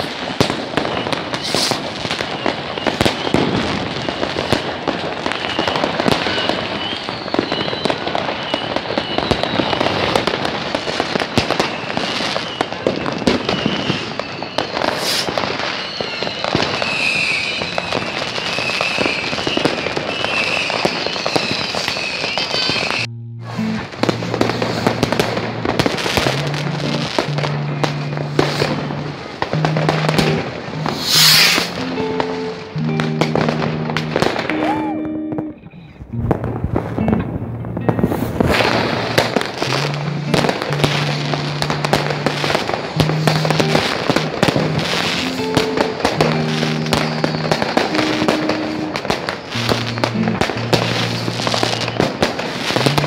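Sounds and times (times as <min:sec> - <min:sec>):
firecrackers crackling and banging: 0:00.0 - 0:53.0
high wavering whistle: 0:00.8 - 0:10.2, 0:11.6 - 0:36.1, 0:43.0 - 0:52.2
music with low sustained notes: 0:23.1 - 0:53.0.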